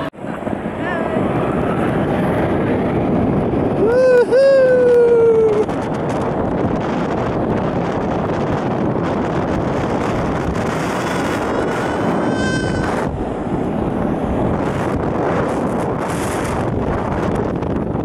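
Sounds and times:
wind buffeting microphone: 0:00.0 - 0:18.0
snow tube sliding on snow: 0:00.2 - 0:18.0
thin rising whine: 0:09.2 - 0:17.9.

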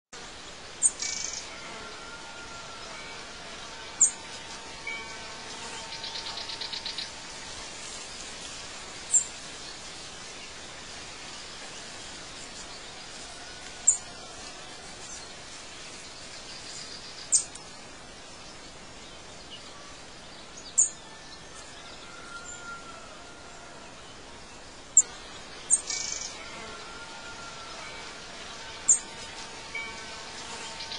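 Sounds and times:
steady hiss: 0:00.2 - 0:30.9.

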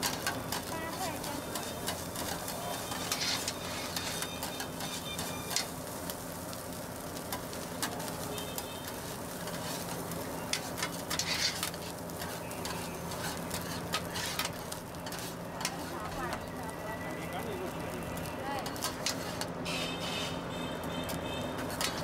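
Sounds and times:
metal spatulas scraping and clacking: 0:00.0 - 0:05.7, 0:09.4 - 0:16.2, 0:18.6 - 0:20.3, 0:21.6 - 0:22.0
rice sizzling on a griddle: 0:00.0 - 0:22.0.

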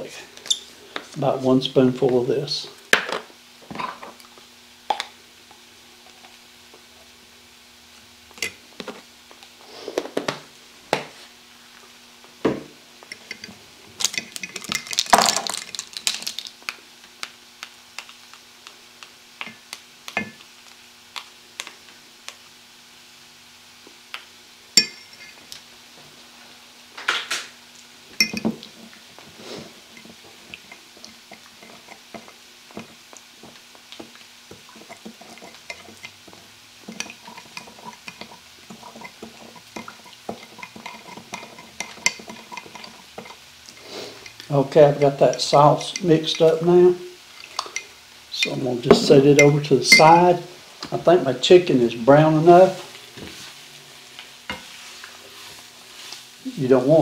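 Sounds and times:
spoons clinking against glass bowl: 0:13.1 - 0:15.4, 0:24.8 - 0:25.4, 0:28.2 - 0:28.6, 0:36.8 - 0:44.4, 0:48.9 - 0:50.3.

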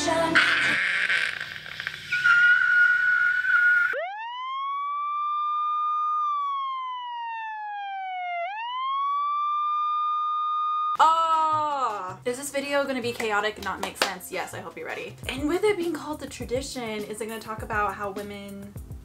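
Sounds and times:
siren sound effect: 0:02.1 - 0:11.0
woman screaming: 0:11.0 - 0:12.0.

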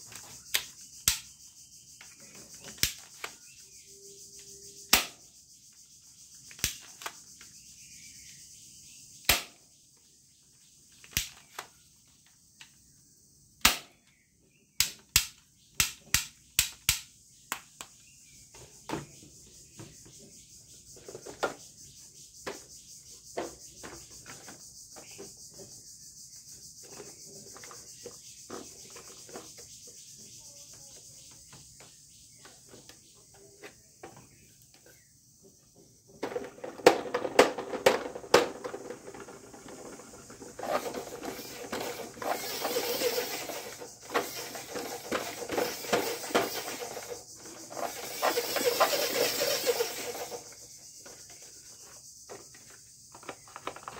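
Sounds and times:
plastic toy clicks and knocks: 0:14.8 - 0:18.0, 0:36.2 - 0:50.5.

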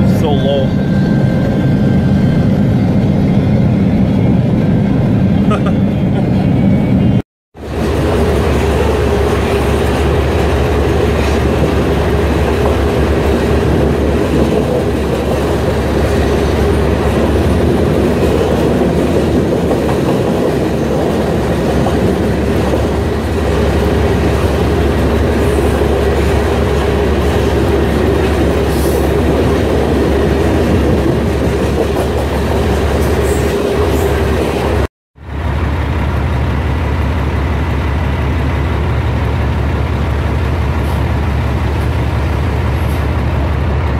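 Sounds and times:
freight train wheels rumbling: 0:00.0 - 0:43.9
truck engine running: 0:35.2 - 0:43.9.

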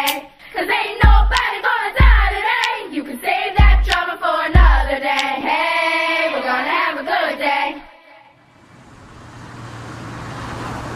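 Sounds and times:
group singing over thumping beat: 0:00.0 - 0:08.1
outdoor background noise: 0:08.4 - 0:10.9.

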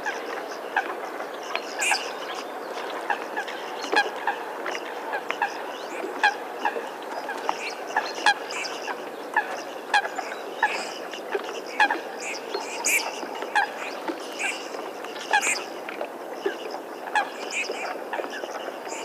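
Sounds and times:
ducks calling: 0:01.7 - 0:02.4, 0:03.0 - 0:15.7.

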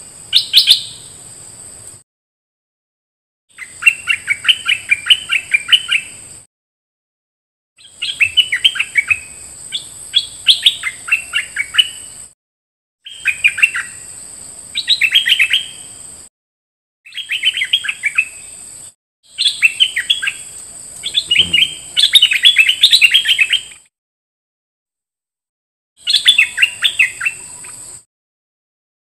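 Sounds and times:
bird singing falling notes: 0:19.3 - 0:23.8
steady high buzz: 0:20.5 - 0:22.2.

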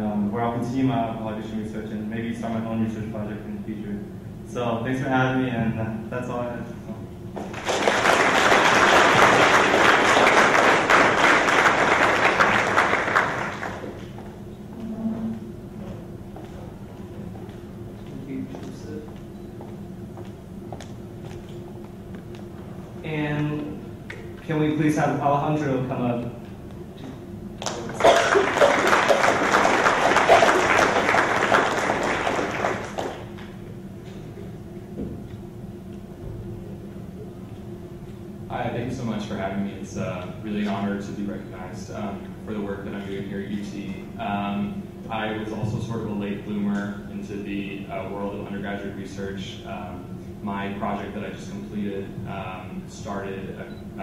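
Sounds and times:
audience applauding: 0:07.4 - 0:14.1, 0:27.6 - 0:33.5.

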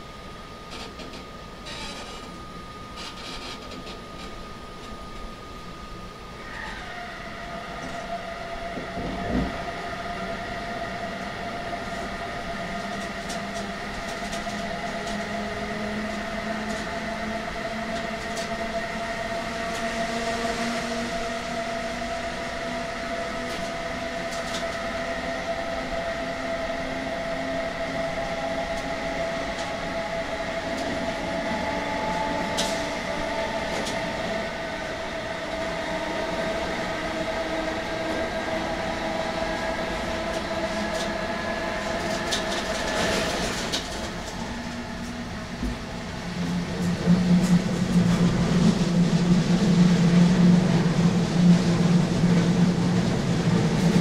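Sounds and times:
traction inverter whine: 0:00.0 - 0:54.0
train running noise: 0:00.0 - 0:54.0.

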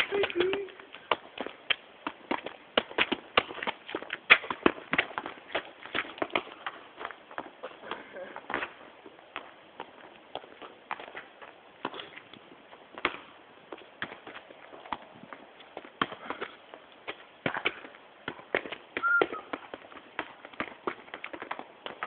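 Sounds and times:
trainers running on hard surface: 0:00.0 - 0:08.8, 0:17.7 - 0:22.0
football kicked and bouncing on tarmac: 0:00.0 - 0:22.0.

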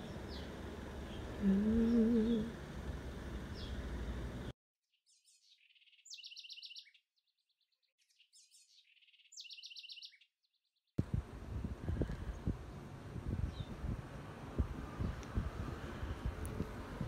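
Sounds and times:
small bird singing with trill: 0:04.9 - 0:10.8, 0:13.4 - 0:13.8.

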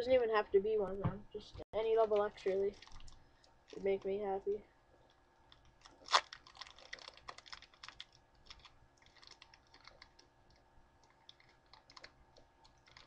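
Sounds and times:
foil wrapper crinkling: 0:02.1 - 0:04.2, 0:05.5 - 0:10.3, 0:11.0 - 0:13.0.

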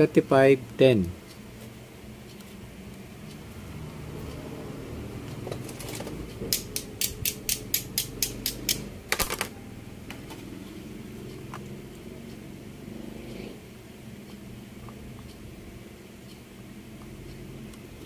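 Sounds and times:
steady low hum: 0:00.0 - 0:18.0
sharp clicks: 0:06.5 - 0:09.5.

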